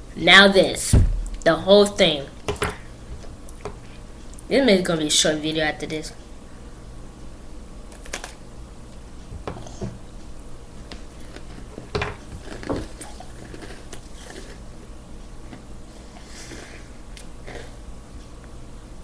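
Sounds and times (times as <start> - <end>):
steady low hum: 0.0 - 19.0
cookie crunching: 7.9 - 8.4, 11.2 - 14.7.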